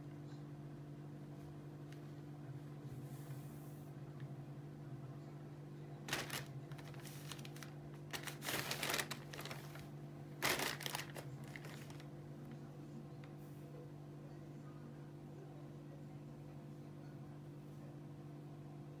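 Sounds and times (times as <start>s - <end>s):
low steady hum: 0.0s - 19.0s
plastic bag crinkling: 6.1s - 12.1s.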